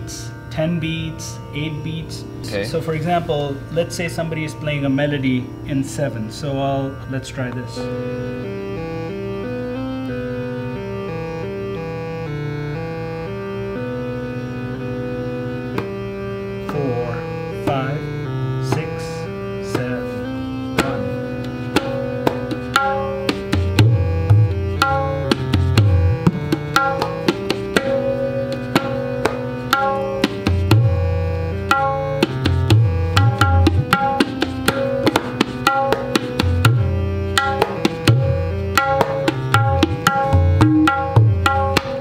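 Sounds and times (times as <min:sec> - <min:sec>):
sustained melodic accompaniment: 0:00.0 - 0:42.0
tabla deep bass strokes: 0:20.8 - 0:42.0
tabla sharp strokes: 0:20.8 - 0:42.0.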